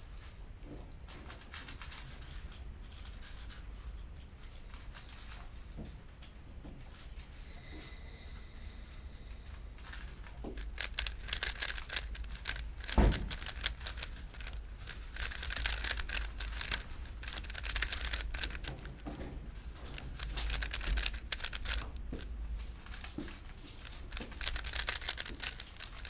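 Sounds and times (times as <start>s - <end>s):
puzzle cube clicking turns: 9.8s - 19.1s, 19.8s - 26.0s
loud thump: 13.0s - 13.3s.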